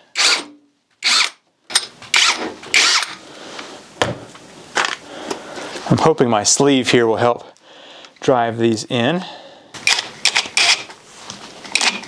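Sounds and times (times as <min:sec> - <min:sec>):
cordless drill driving screws: 0:00.2 - 0:03.2, 0:09.8 - 0:10.9, 0:11.7 - 0:12.0.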